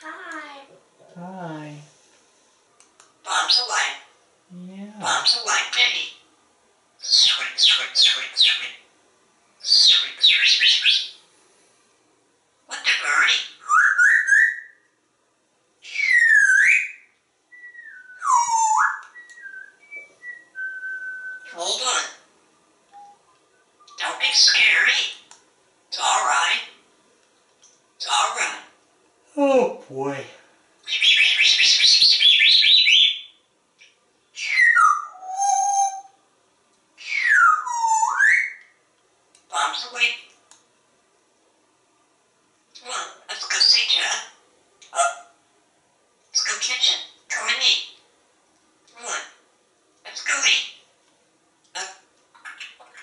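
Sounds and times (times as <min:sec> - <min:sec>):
parrot whistling and calling: 0:07.0 - 0:08.8, 0:09.6 - 0:11.2, 0:12.7 - 0:14.9, 0:15.8 - 0:22.2, 0:23.8 - 0:25.2, 0:30.8 - 0:33.4, 0:34.4 - 0:36.2, 0:37.0 - 0:38.8, 0:42.8 - 0:45.3, 0:46.3 - 0:48.0, 0:50.1 - 0:50.8, 0:51.7 - 0:53.0
parrot whistles: 0:13.6 - 0:14.8, 0:15.9 - 0:21.6, 0:34.4 - 0:36.1, 0:37.0 - 0:38.6
parrot raspy chatter: 0:25.9 - 0:26.8, 0:42.8 - 0:45.3, 0:46.4 - 0:47.9, 0:48.9 - 0:49.4, 0:50.0 - 0:50.8.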